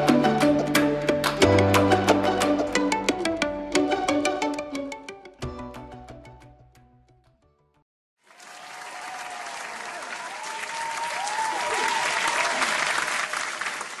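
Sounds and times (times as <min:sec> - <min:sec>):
background music: 0:00.0 - 0:07.8
audience applause: 0:08.2 - 0:14.0.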